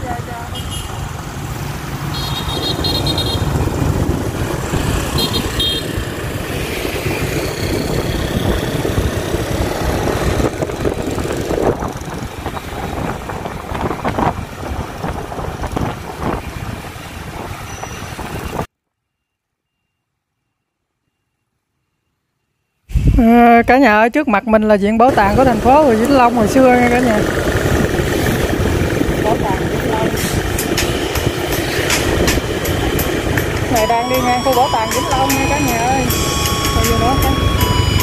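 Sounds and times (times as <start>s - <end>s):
motorbike and car engines: 0.0s - 18.7s, 25.0s - 38.0s
horn beeping: 5.1s - 6.0s, 29.9s - 38.0s.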